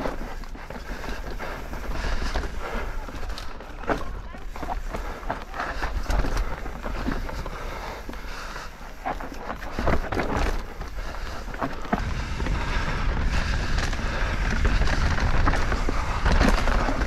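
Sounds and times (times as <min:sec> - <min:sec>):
bike knocking and rattling: 0:00.0 - 0:17.0
bike tyres rolling over dirt: 0:00.0 - 0:17.0
wind on microphone: 0:09.8 - 0:17.0.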